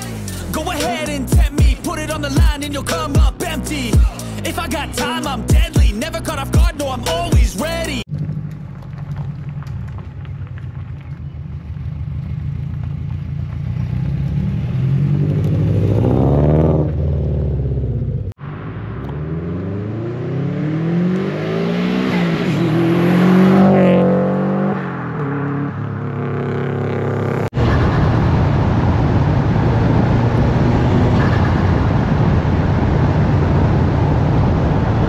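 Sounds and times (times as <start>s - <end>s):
car engine revving: 11.4s - 35.0s.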